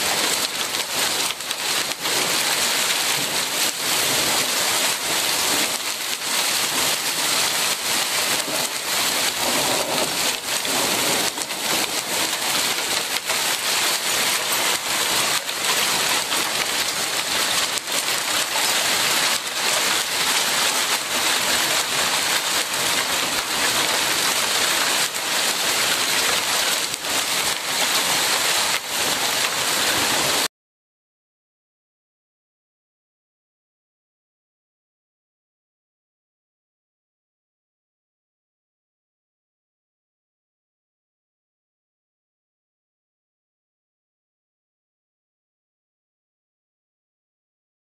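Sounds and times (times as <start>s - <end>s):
hail pelting a wooden deck: 0.0s - 30.5s.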